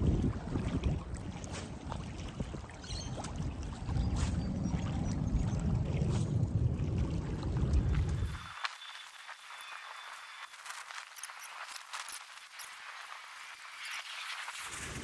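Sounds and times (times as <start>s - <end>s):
wind rumbling on microphone: 0.0s - 8.5s.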